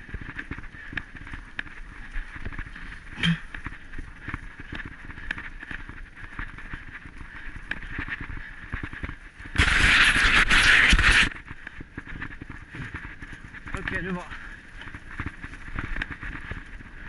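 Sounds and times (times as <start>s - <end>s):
steady hiss: 9.5s - 11.3s
rough rubbing on microphone: 9.6s - 11.4s.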